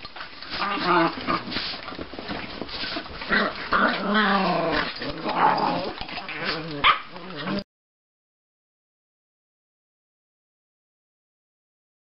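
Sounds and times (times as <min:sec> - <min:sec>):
dogs growling and snarling: 0:00.1 - 0:07.7
dog yips: 0:06.8 - 0:07.1.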